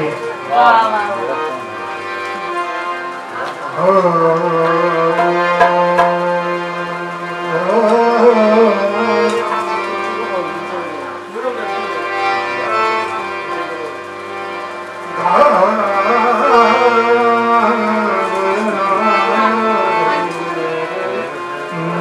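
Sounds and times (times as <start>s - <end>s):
harmonium chords: 0.0s - 22.0s
hand drum: 3.4s - 10.9s
man singing loudly: 3.7s - 9.5s, 15.2s - 22.0s.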